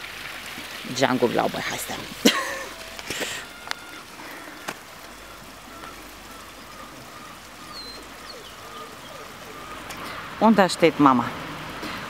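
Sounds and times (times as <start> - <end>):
faint bird chirps: 5.2 - 10.2.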